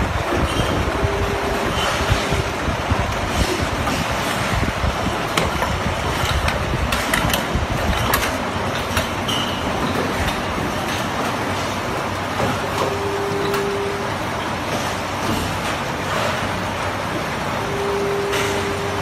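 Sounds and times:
assembly line machine noise: 0.0 - 19.0
sharp clicks and knocks: 3.1 - 11.4.

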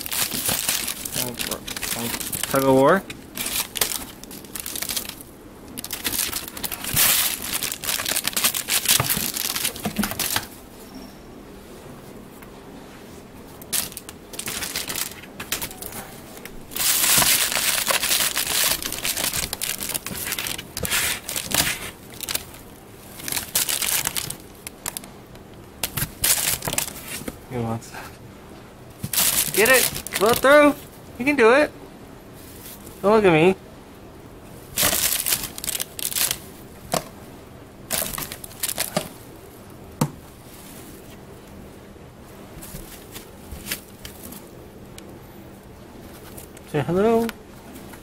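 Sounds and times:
plastic bag crinkling: 0.0 - 10.6, 13.6 - 25.1, 25.8 - 27.3, 29.0 - 30.8, 34.7 - 37.1, 37.9 - 39.2.

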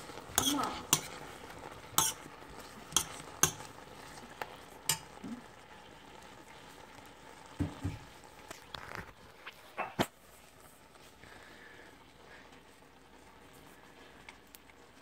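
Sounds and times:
faint frying sizzle: 0.0 - 15.0
metal spoon scraping a pan: 0.2 - 1.3, 2.0 - 3.8, 4.9 - 5.2.

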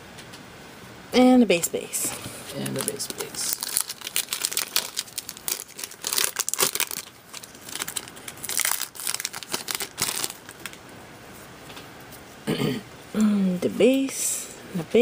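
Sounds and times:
foil wrapper tearing and crinkling: 2.6 - 10.8.

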